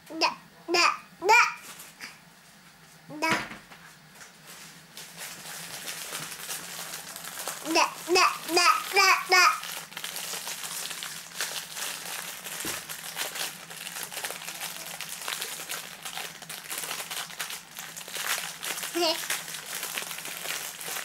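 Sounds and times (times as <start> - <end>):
packaging crinkling: 4.4 - 21.0.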